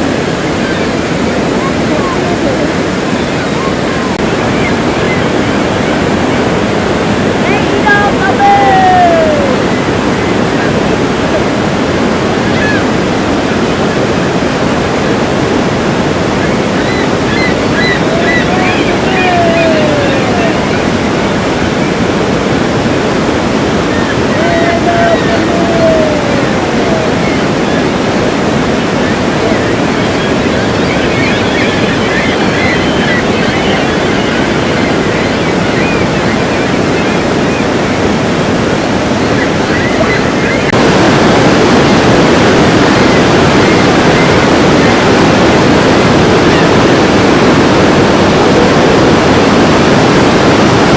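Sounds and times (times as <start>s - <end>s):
roar of falling water: 0.0s - 30.5s.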